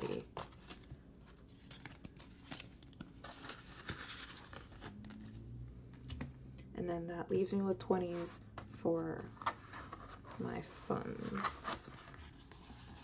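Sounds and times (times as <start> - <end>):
banknotes and envelope rustling: 0.0 - 5.4, 9.3 - 13.0.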